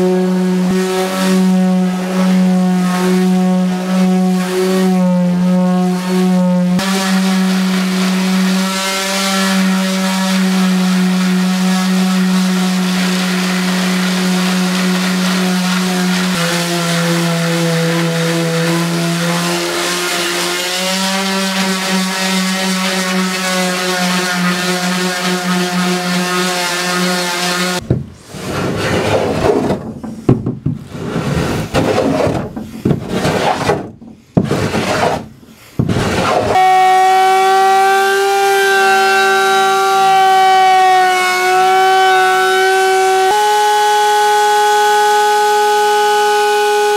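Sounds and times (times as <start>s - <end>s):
electric palm sander humming: 0.0s - 27.8s, 35.8s - 46.9s
hand scraping plywood edge: 6.8s - 37.0s.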